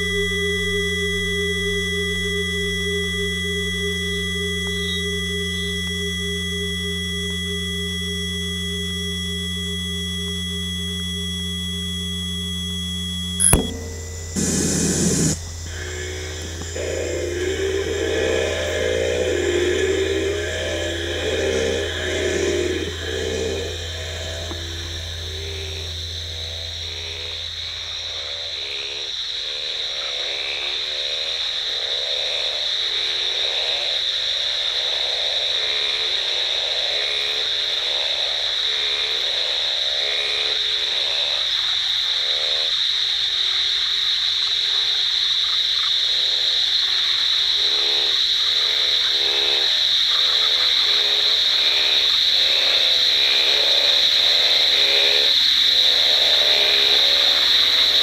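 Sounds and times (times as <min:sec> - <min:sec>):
high-pitched trilling drone: 0:00.0 - 0:29.0
frogs croaking: 0:00.0 - 0:58.0.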